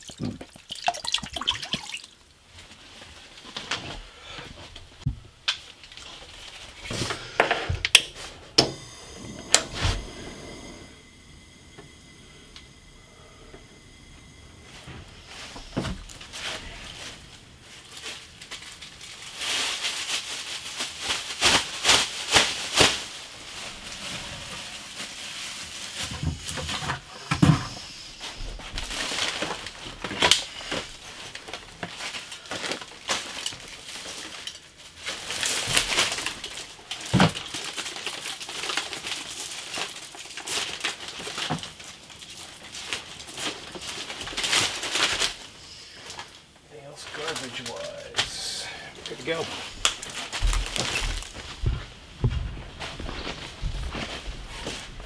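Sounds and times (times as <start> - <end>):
plastic bag rustling and crinkling: 0.0 - 10.2, 14.5 - 55.0.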